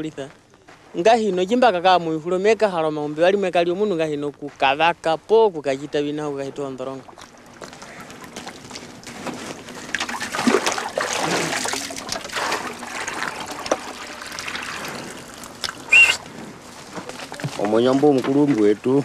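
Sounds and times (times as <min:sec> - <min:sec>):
liquid trickling and splashing: 0:07.0 - 0:17.9.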